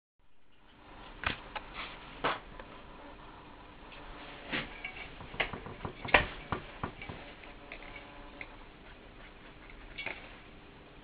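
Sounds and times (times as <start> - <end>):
speaker frame knocking on bench: 5.2 - 7.2.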